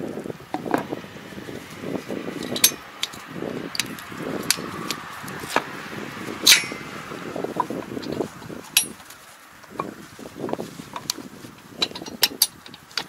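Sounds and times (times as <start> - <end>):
rustling handling noise: 0.2 - 13.0
metal tools clinking on metal: 2.4 - 5.6, 6.4 - 6.9, 8.0 - 9.1, 11.8 - 13.0.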